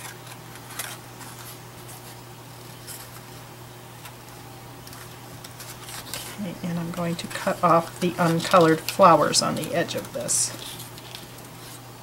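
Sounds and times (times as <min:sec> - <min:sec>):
steady low hum: 0:00.0 - 0:12.0
scissors snipping paper: 0:04.9 - 0:11.8.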